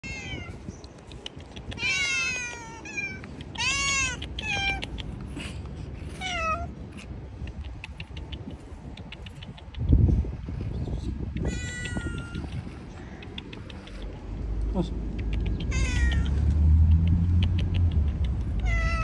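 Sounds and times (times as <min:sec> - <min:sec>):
cats meowing: 0:00.0 - 0:00.7, 0:01.7 - 0:04.9, 0:06.1 - 0:06.8, 0:11.4 - 0:12.7, 0:15.7 - 0:16.4, 0:18.6 - 0:19.0.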